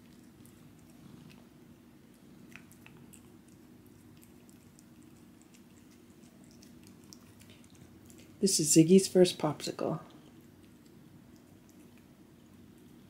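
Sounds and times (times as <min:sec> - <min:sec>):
low steady hum: 0:00.0 - 0:13.0
cat licking with wet clicks: 0:02.1 - 0:08.4, 0:10.1 - 0:13.0.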